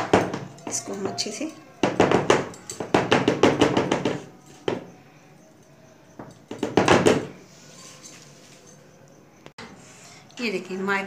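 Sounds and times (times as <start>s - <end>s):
metal pan knocking on wooden table: 1.8s - 4.9s.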